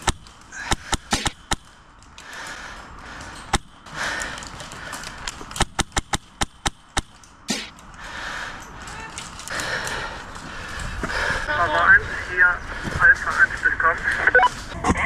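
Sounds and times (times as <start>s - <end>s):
airsoft rifle shots: 0.0s - 1.8s, 5.5s - 7.8s.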